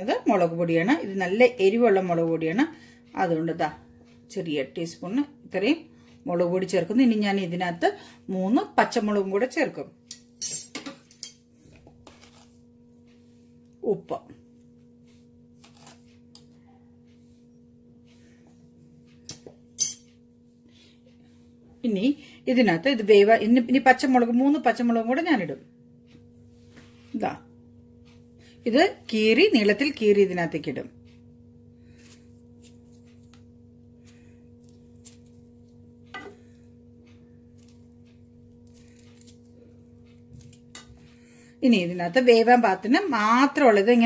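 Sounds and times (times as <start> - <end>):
steady low hum: 0.0 - 44.0
knife slitting chillies: 38.6 - 39.5.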